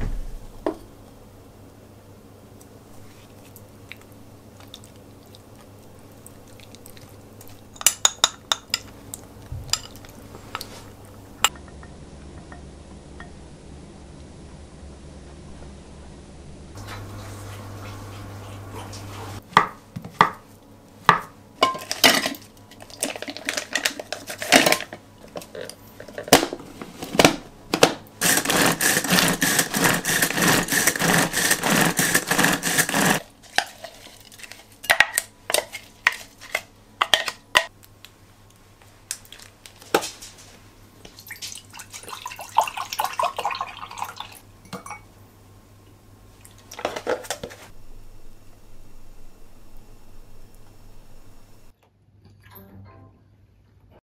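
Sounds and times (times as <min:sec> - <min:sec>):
bowls and utensils clattering: 0:07.6 - 0:10.8, 0:21.6 - 0:37.7, 0:41.1 - 0:45.1
hand-pull food chopper whirring: 0:28.2 - 0:33.2.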